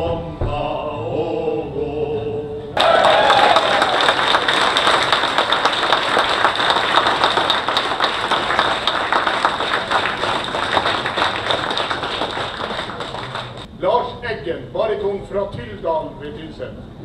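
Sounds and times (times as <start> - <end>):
large audience applauding: 2.8 - 13.7.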